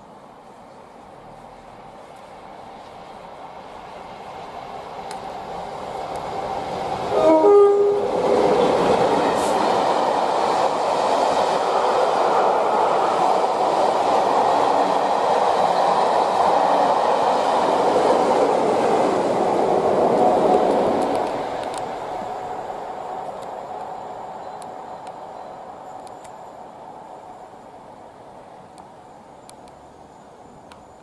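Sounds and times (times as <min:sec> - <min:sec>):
train rumbling past: 0:00.0 - 0:31.0
two-note locomotive horn: 0:07.1 - 0:08.2.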